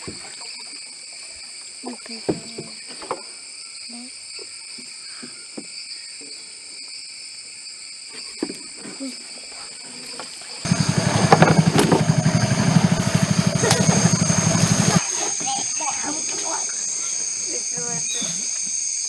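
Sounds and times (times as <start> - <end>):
rainforest insects chorus: 0.0 - 19.0
small engine chugging: 10.6 - 18.5.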